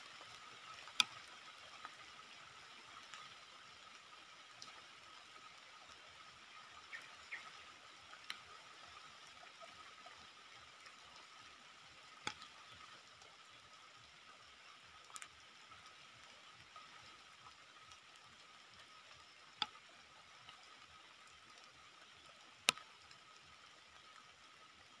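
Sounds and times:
sharp ticks: 20.5s - 23.6s.

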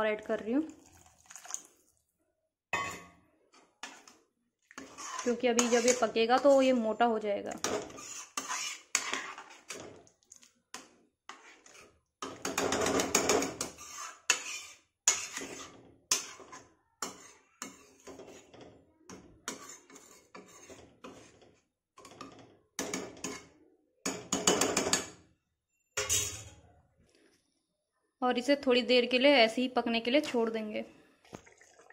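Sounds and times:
steel spoon scraping a pot: 2.8s - 10.1s, 10.7s - 25.2s, 26.0s - 26.6s.

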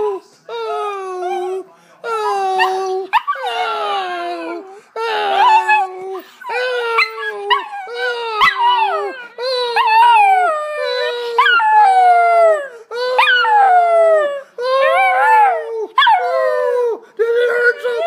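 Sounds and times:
puppy howling: 0.0s - 18.0s.

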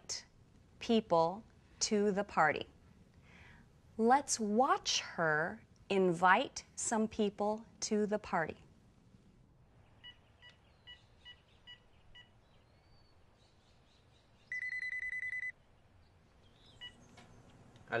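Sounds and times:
phone keypad beeps: 14.5s - 15.5s
phone ringing warble: 14.5s - 15.5s.

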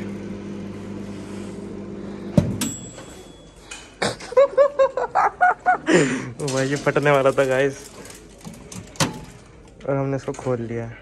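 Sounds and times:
microwave oven humming: 0.0s - 5.2s
timer bell ding: 2.6s - 3.7s.

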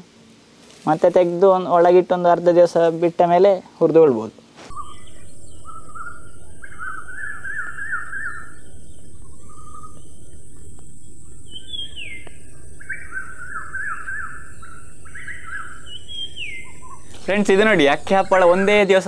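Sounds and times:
steady hiss: 0.0s - 19.0s
songbirds trilling and warbling: 4.3s - 19.0s
constant high-pitched tone: 4.7s - 19.0s.

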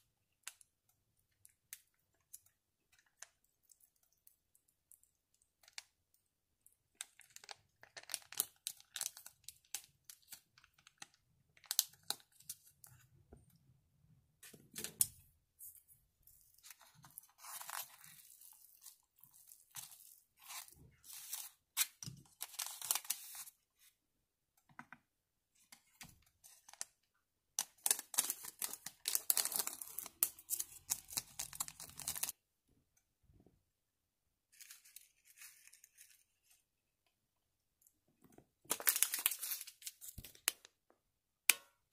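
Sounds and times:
plastic packets crinkling and tearing: 6.9s - 12.7s, 16.4s - 23.5s, 27.6s - 32.4s, 38.7s - 40.8s.

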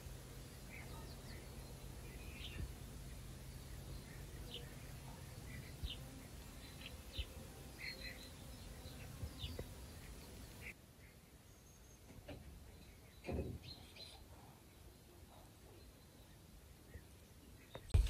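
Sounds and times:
low background rumble: 0.0s - 7.2s
small birds chirping: 0.0s - 18.0s.

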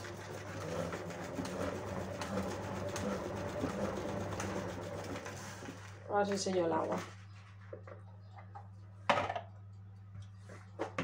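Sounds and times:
salad spinner whirring: 0.0s - 6.0s.

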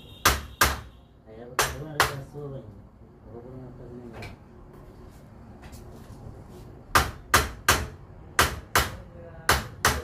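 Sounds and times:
hammer striking metal: 0.2s - 0.9s, 6.9s - 10.0s.

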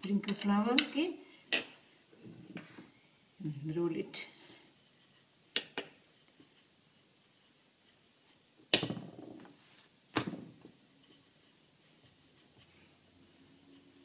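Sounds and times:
rolling pin knocking on stone: 8.7s - 9.5s.

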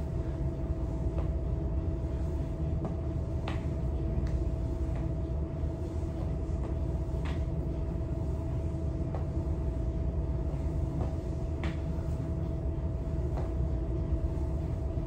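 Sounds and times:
steady low hum: 0.0s - 15.0s
soft thuds on gym floor: 10.9s - 12.0s, 13.2s - 13.8s.

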